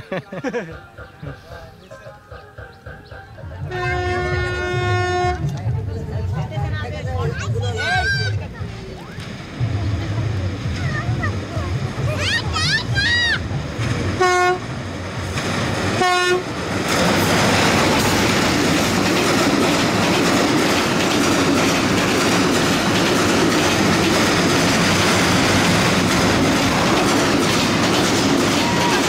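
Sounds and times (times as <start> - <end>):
train wheels rumbling and clacking: 0.0 - 29.0
train horn blasts: 3.6 - 5.5, 14.2 - 14.7, 16.0 - 16.5.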